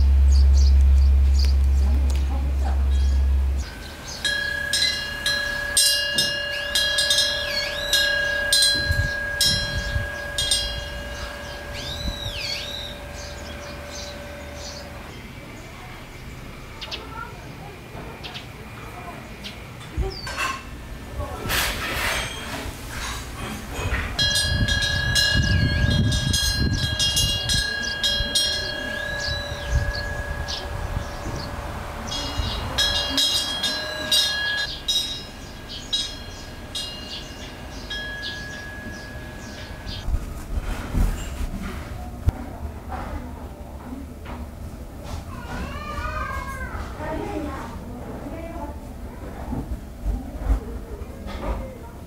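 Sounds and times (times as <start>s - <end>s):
metal wind bell ringing: 0.0s - 15.2s, 21.8s - 40.1s
low rumble: 0.0s - 16.7s
bird chirping: 0.0s - 17.3s, 27.6s - 40.1s
wind rumble on microphone: 7.4s - 14.9s, 21.0s - 34.7s, 38.4s - 42.8s.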